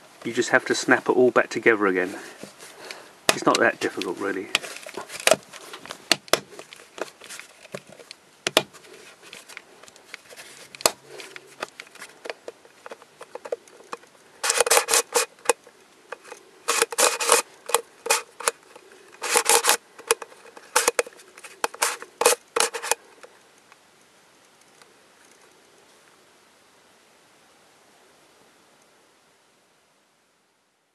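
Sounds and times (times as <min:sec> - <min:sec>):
plastic puzzle clicking: 0:09.4 - 0:23.0.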